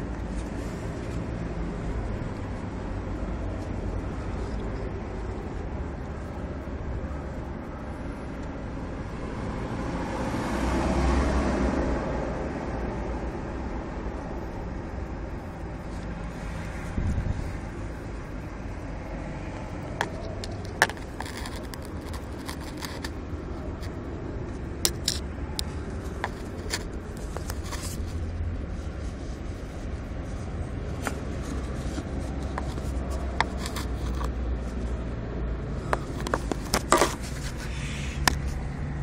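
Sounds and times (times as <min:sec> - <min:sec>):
steady low rumble: 0:00.0 - 0:10.8, 0:11.4 - 0:39.0
phone handling noise: 0:35.9 - 0:37.6.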